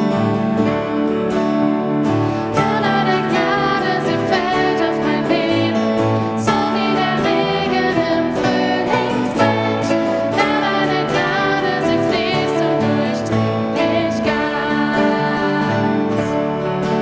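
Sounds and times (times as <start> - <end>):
acoustic guitar and piano: 0.0 - 17.0
women singing: 2.4 - 17.0.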